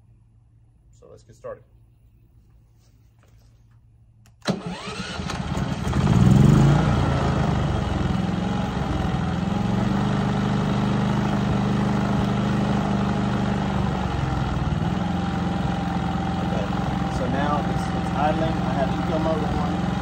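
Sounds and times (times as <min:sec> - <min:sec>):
generator starting and idling: 0:04.3 - 0:20.0.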